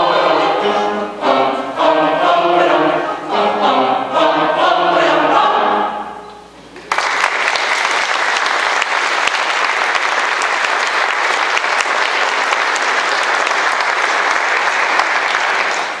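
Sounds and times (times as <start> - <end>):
audience applauding: 6.8 - 16.0.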